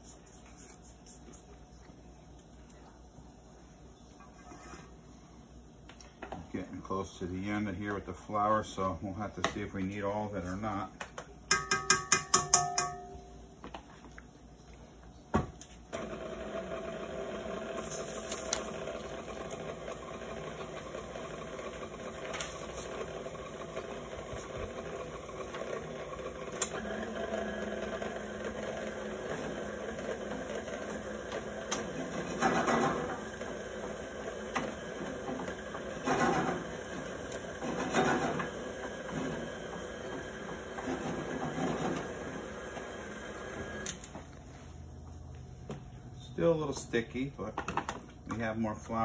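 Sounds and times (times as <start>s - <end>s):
electric mixer motor running: 16.0s - 44.0s.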